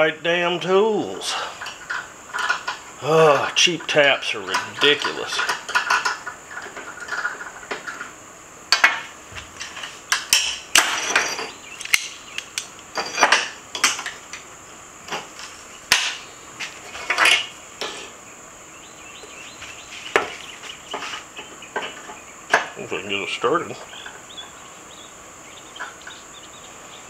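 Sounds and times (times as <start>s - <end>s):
high insect buzz: 0.0s - 27.0s
metal clinks and knocks: 9.6s - 12.1s, 12.9s - 14.2s.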